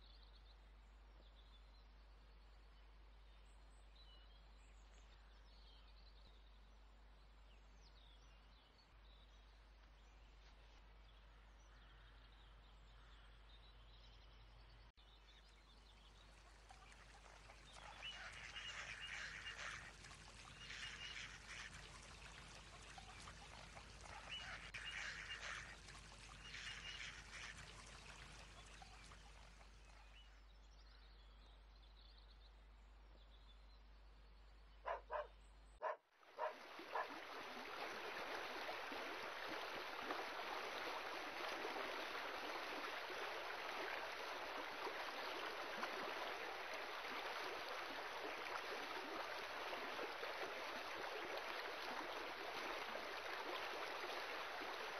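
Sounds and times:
water rushing down spillway: 16.2s - 29.9s, 36.4s - 54.9s
animal calls: 34.9s - 37.1s.

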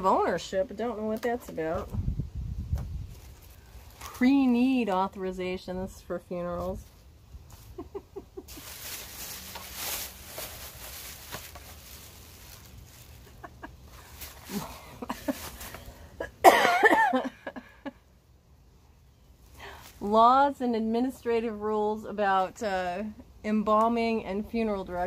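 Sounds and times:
woman coughing: 16.3s - 17.5s.

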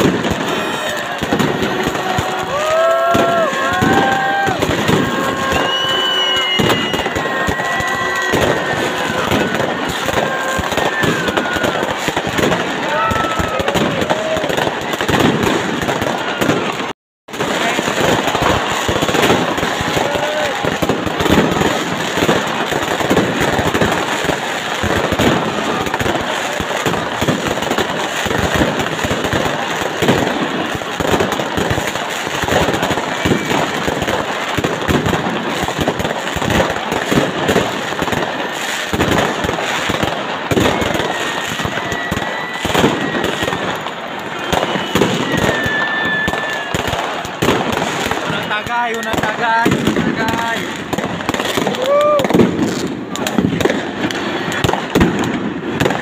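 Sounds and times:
crowd voices: 0.0s - 56.0s
fireworks bangs and crackles: 0.0s - 56.0s
short whistles: 5.5s - 7.1s, 44.3s - 46.7s.

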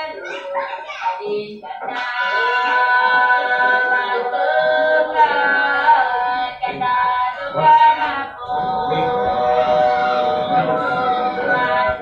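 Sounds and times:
person singing long held notes: 1.4s - 12.0s
musical accompaniment: 6.5s - 12.0s.

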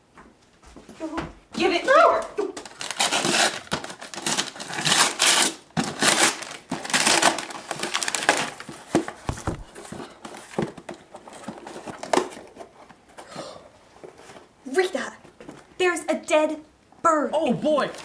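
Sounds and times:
wrapping paper tearing and rustling: 2.6s - 9.7s
cardboard box taps: 9.3s - 9.7s.

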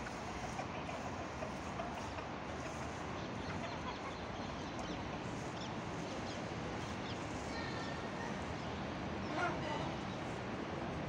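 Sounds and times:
chicken clucks: 0.0s - 5.3s.

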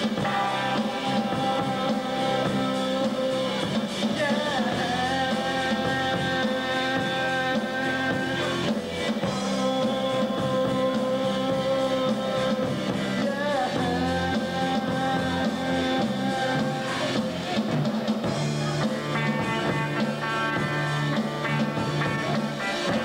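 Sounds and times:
live rock band playing: 0.0s - 23.0s
sliding guitar notes: 4.6s - 23.0s.

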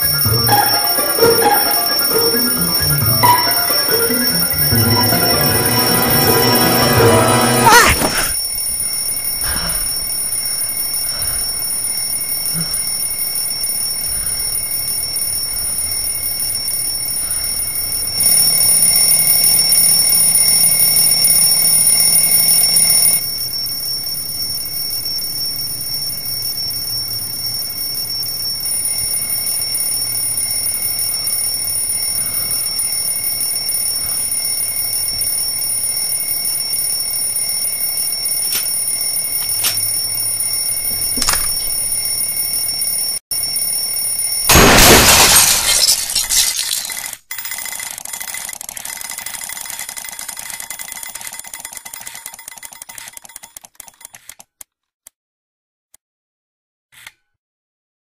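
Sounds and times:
alarm clock ringing: 0.0s - 44.5s.

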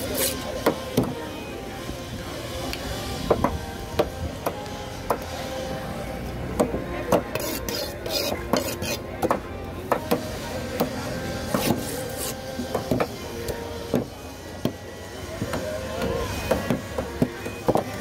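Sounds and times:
knife scraping: 0.0s - 0.5s, 7.3s - 9.1s, 11.5s - 12.5s
knife chopping on wooden board: 6.6s - 11.9s.

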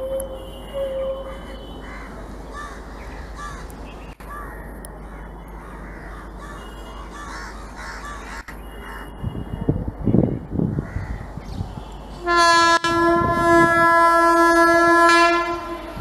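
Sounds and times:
crows cawing: 1.3s - 9.1s.

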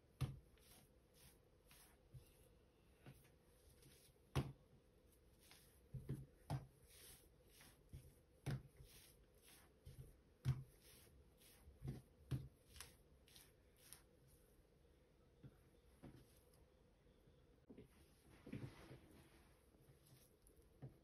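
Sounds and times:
hands pressing dough on wood: 5.5s - 6.8s, 9.7s - 11.0s.

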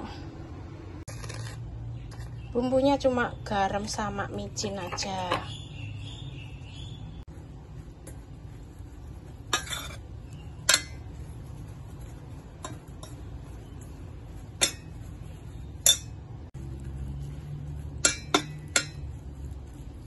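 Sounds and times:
spoon stirring batter in bowl: 7.2s - 20.0s
spoon clinking against metal bowl: 9.5s - 11.2s, 12.6s - 13.9s, 14.5s - 15.1s, 15.7s - 16.3s, 18.0s - 19.2s.

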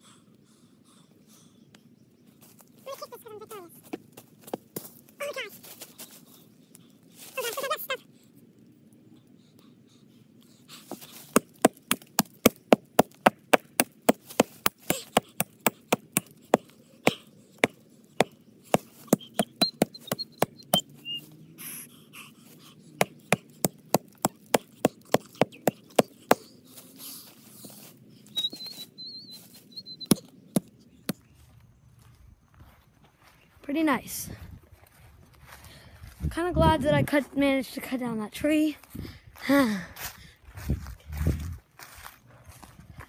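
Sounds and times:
axe chopping tree trunk: 11.3s - 20.8s, 23.0s - 26.5s.

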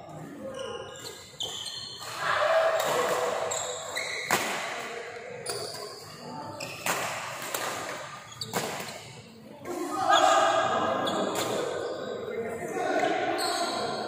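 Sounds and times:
voices calling out: 0.2s - 4.8s.

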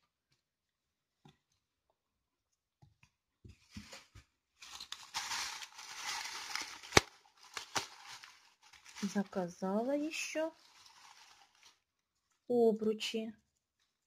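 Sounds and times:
plastic bag crinkling: 3.8s - 12.3s.

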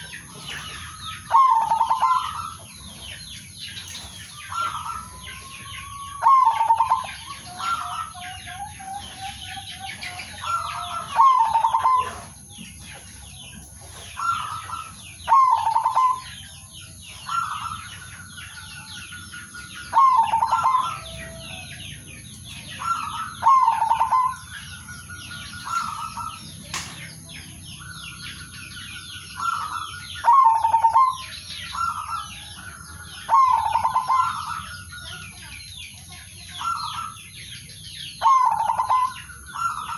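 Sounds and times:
dove cooing: 0.0s - 3.2s, 4.4s - 16.4s, 18.8s - 26.9s, 28.8s - 35.4s, 38.2s - 39.9s
small birds chirping: 0.0s - 39.9s.

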